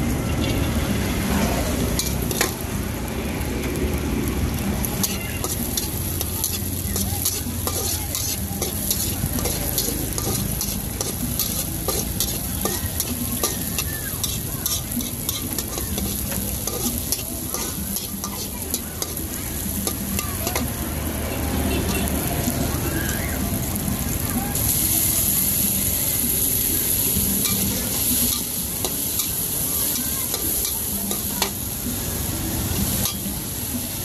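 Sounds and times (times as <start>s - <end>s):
oil sizzling: 0.0s - 34.0s
metal ladle scraping a wok: 1.8s - 2.7s, 4.9s - 20.8s, 26.5s - 31.8s, 32.7s - 33.4s.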